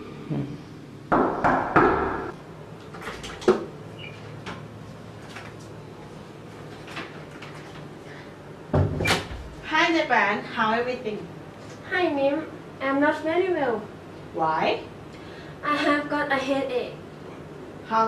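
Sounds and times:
knuckles knocking on wooden door: 0:01.1 - 0:02.3.

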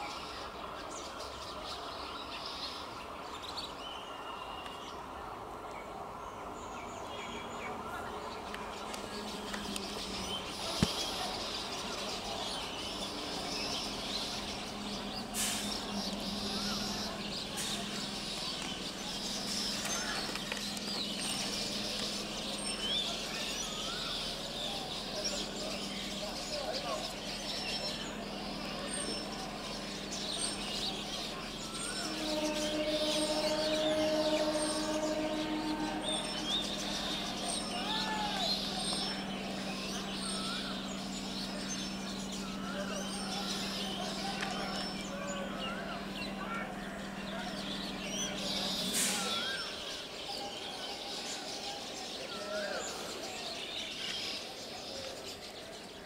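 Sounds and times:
birds chirping: 0:00.0 - 0:56.0
crowd voices: 0:00.0 - 0:56.0
train hum: 0:00.0 - 0:56.0
long steady tone: 0:07.8 - 0:50.2
short hiss: 0:15.4 - 0:15.8, 0:48.9 - 0:49.3.

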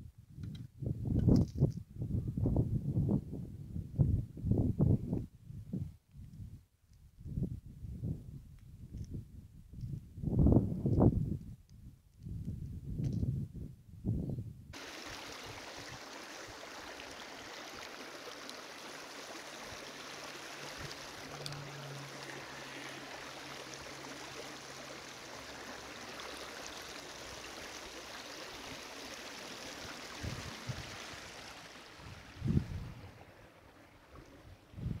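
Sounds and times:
river water gurgling over rocks: 0:14.8 - 0:32.4.

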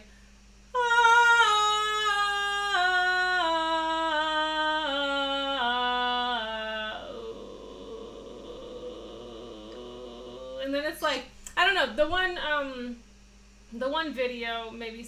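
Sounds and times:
woman singing descending notes: 0:00.7 - 0:11.2.

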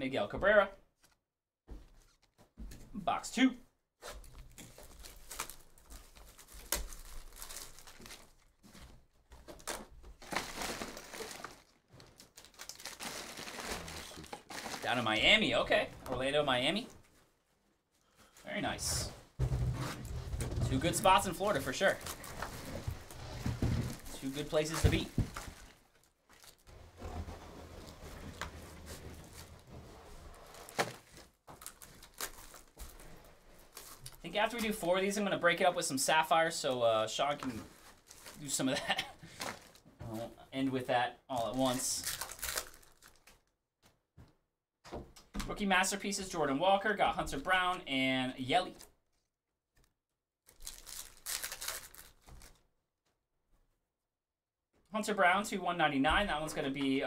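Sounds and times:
cardboard and paper rustling: 0:04.0 - 0:15.0, 0:18.2 - 0:34.8, 0:37.3 - 0:39.9.

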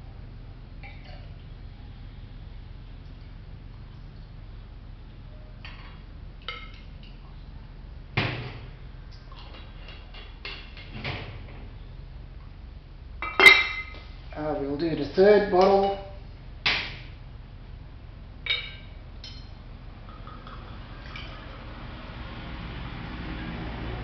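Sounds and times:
glass bottles knocking and clinking: 0:13.2 - 0:14.0, 0:18.5 - 0:21.3
ringing glass clink: 0:13.2 - 0:14.0, 0:18.5 - 0:19.6.

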